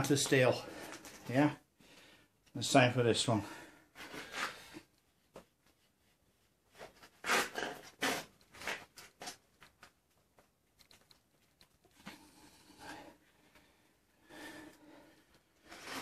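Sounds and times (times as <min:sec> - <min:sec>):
knife scraping and cutting rubber: 0:06.8 - 0:09.4, 0:15.6 - 0:16.0.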